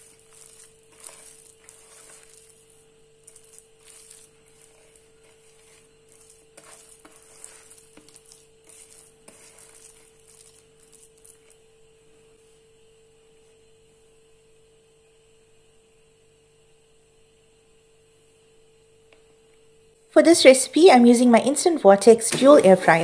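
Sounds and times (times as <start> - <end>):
hands squelching wet batter: 0.0 - 11.6
faint steady hum: 0.0 - 23.0.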